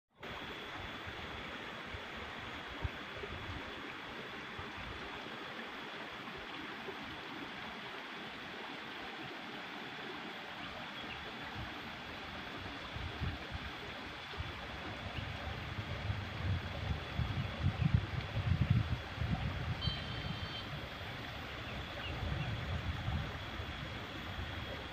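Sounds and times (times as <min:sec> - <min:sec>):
running water rushing: 0:00.2 - 0:24.9.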